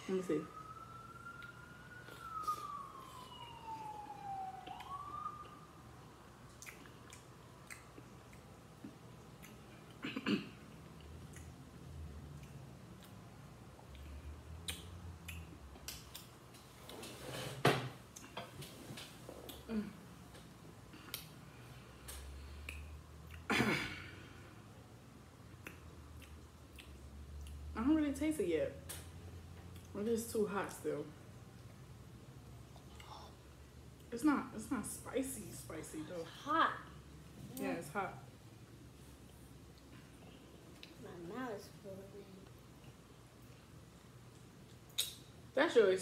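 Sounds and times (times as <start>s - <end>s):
faint siren wailing: 0.0s - 7.6s.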